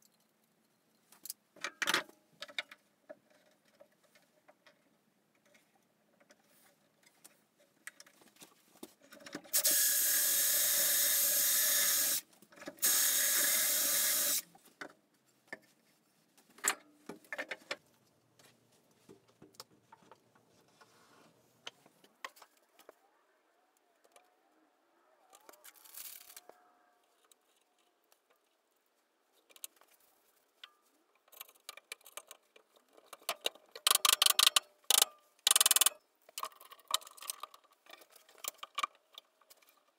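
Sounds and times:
small power tool running: 9.6s - 12.2s, 12.8s - 14.4s
bar clamp ratcheting clicks: 33.8s - 37.5s.

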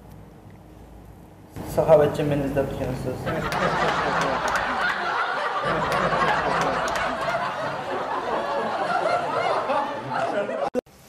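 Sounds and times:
group of people laughing: 3.1s - 10.8s.

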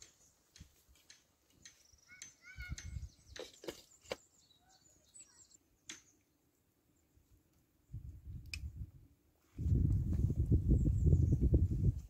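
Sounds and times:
faint bird chirps: 1.6s - 6.4s.

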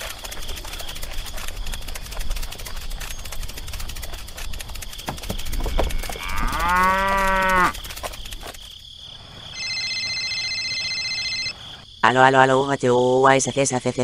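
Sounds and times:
cow mooing: 5.4s - 7.8s
mobile phone ringing: 9.6s - 11.6s.

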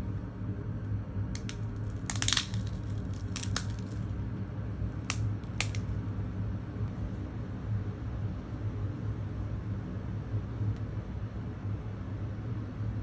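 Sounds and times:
steady low hum: 0.0s - 13.0s
plastic film crackling: 1.4s - 4.0s.

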